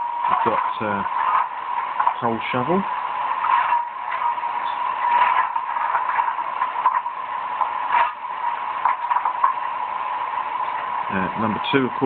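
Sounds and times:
coal shovelling scrapes from speaker: 0:03.4 - 0:07.1.

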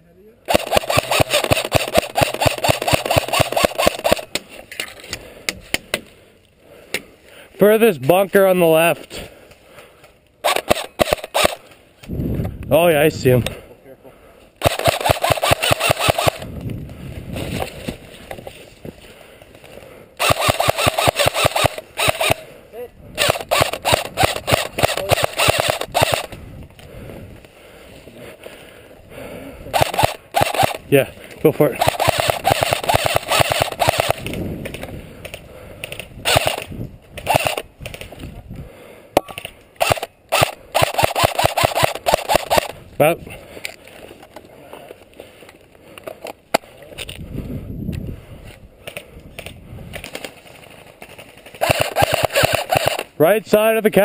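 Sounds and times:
airsoft rifle firing full-auto: 0:00.5 - 0:04.3, 0:10.4 - 0:11.6, 0:14.6 - 0:16.5, 0:20.2 - 0:22.4, 0:23.2 - 0:26.3, 0:29.7 - 0:30.8, 0:31.8 - 0:34.3, 0:36.2 - 0:37.6, 0:39.8 - 0:42.8, 0:51.6 - 0:53.1
rustling and movement: 0:14.4 - 0:38.6, 0:39.3 - 0:53.2.

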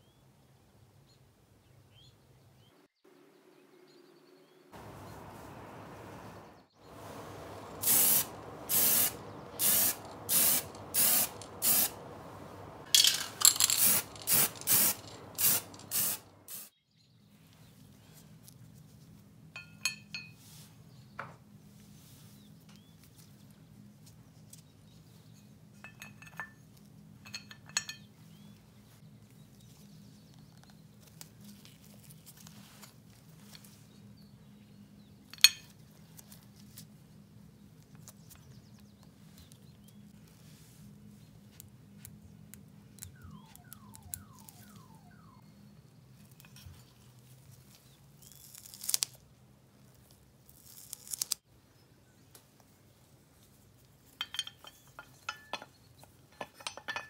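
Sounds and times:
low steady hum: 0:03.2 - 0:16.6
spray-paint can hissing: 0:07.0 - 0:16.7
small metal parts clinking: 0:12.8 - 0:16.2, 0:54.2 - 0:57.0.

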